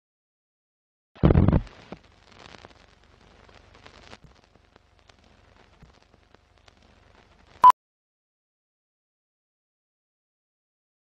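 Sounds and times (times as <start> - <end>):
film crackle and clicks: 1.5 - 7.6.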